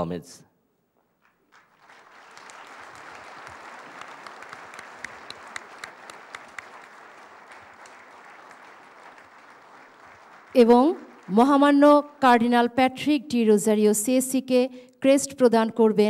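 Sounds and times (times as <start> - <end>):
audience applauding: 1.2 - 12.7.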